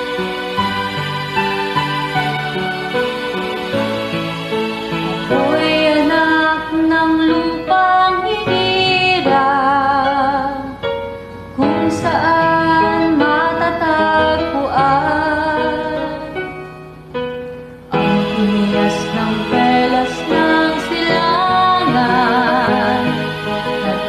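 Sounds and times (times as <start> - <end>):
instrumental backing music: 0.0 - 24.0
girls singing slow song: 18.0 - 24.0.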